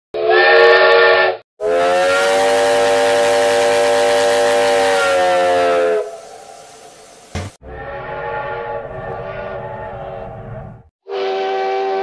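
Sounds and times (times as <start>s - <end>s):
steam train whistle: 0.2s - 8.7s, 11.0s - 12.0s
steam hissing: 1.7s - 7.6s.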